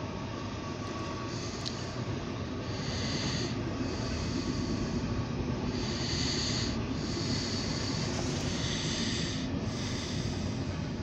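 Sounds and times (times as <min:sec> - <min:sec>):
train wheels rumbling on rail: 0:00.0 - 0:11.0
hiss: 0:02.7 - 0:05.1, 0:05.7 - 0:11.0.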